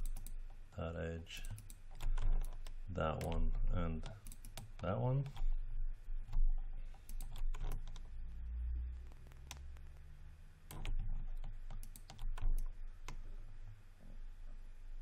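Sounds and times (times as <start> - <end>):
low steady hum: 0.0 - 15.0
mouse and keyboard clicks: 6.3 - 8.1.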